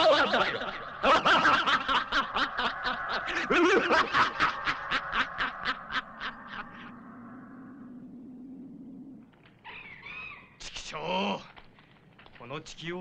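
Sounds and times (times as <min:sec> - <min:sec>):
echoing mocking laugh: 0:00.0 - 0:07.0.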